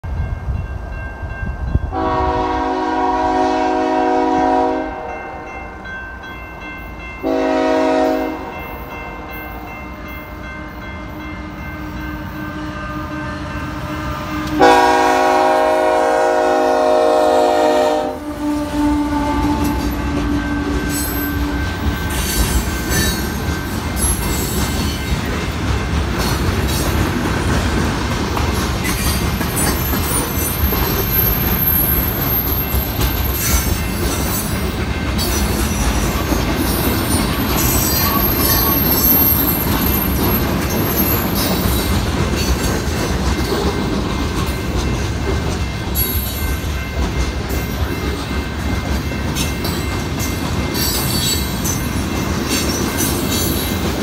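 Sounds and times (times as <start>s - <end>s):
diesel locomotive rumbling: 0.0s - 5.5s, 6.6s - 54.0s
locomotive air horn blasts: 1.9s - 5.4s, 7.2s - 8.6s, 12.3s - 20.7s
train wheels clattering on rails: 19.2s - 54.0s.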